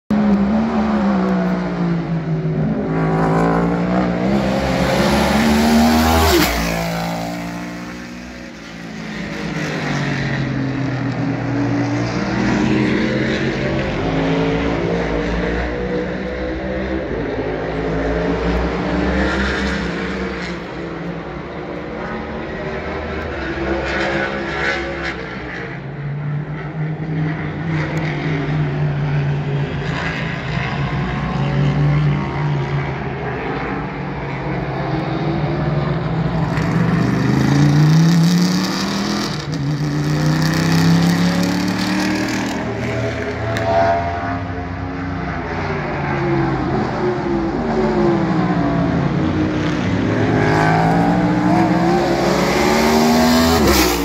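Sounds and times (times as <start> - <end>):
race car engines: 0.1 - 54.0.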